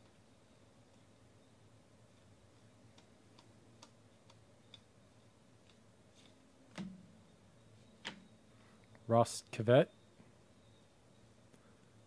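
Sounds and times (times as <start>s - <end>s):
trading cards flipped by hand: 5.6s - 7.0s.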